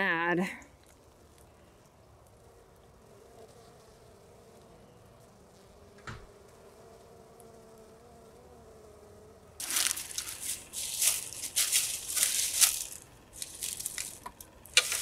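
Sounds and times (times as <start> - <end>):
bees buzzing: 1.0 - 15.0
footsteps crunching dry leaves: 9.6 - 15.0.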